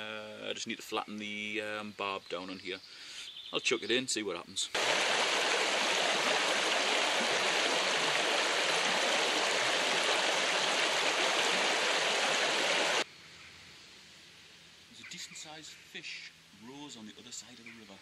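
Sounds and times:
river water rushing: 4.8s - 13.0s.

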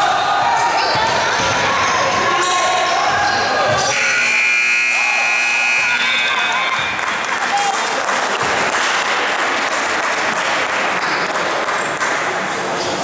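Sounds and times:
scoreboard buzzer: 3.9s - 6.8s
crowd applauding and cheering: 6.3s - 12.2s.

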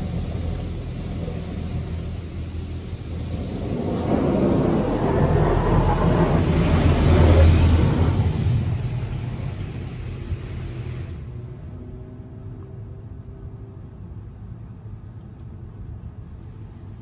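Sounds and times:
water spray rushing on car: 0.0s - 11.7s
low machine hum: 0.0s - 17.0s.

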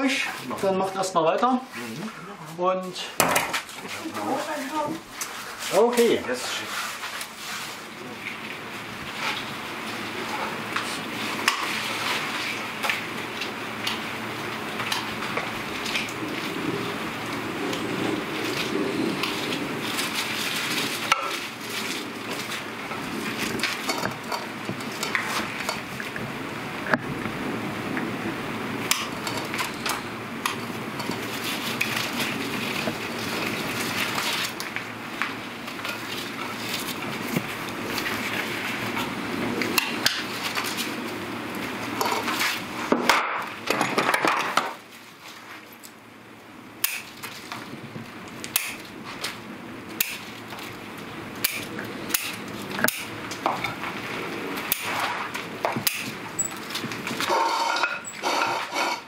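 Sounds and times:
steady rushing noise: 8.6s - 43.1s
scissors snipping: 50.0s - 50.2s.

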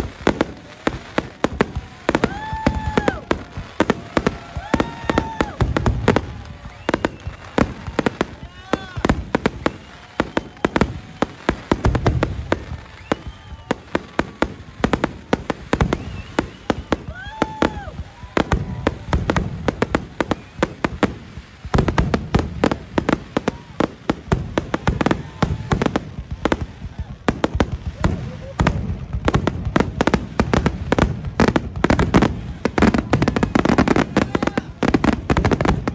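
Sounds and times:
fireworks bangs and crackles: 0.0s - 35.9s.

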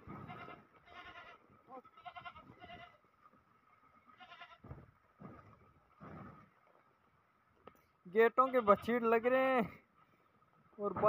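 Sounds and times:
goats bleating: 0.0s - 3.0s, 4.1s - 4.7s, 8.2s - 9.1s.

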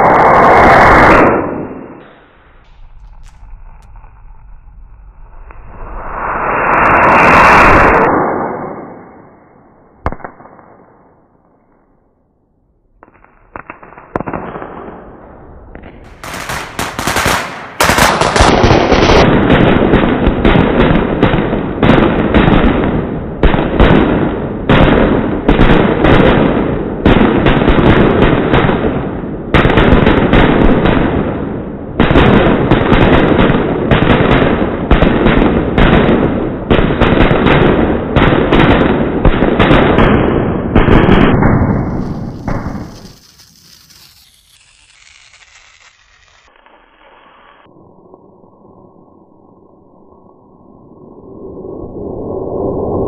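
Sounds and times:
firecrackers crackling: 2.0s - 4.9s, 16.0s - 22.6s, 32.0s - 47.7s
separate firecracker bangs: 15.8s - 44.7s.

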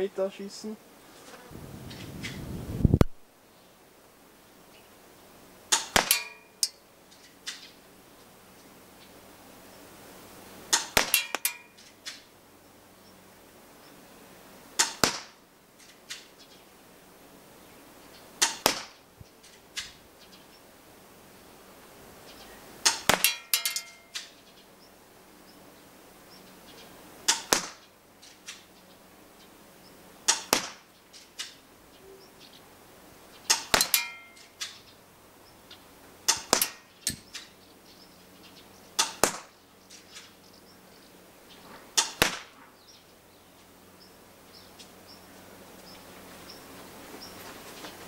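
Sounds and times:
airsoft pistol shots: 5.7s - 6.4s, 14.8s - 15.4s, 18.4s - 19.0s, 27.3s - 27.8s, 30.3s - 30.8s, 33.5s - 34.1s, 36.3s - 36.8s, 39.0s - 39.5s, 42.0s - 42.5s.

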